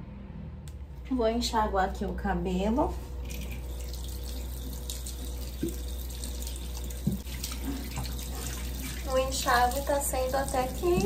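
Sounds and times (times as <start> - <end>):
tap water running into sink: 3.2 - 11.0.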